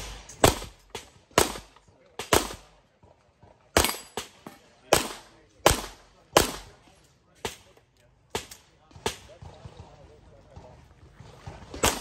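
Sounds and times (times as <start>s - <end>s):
handgun shots echoing: 3.8s - 6.8s.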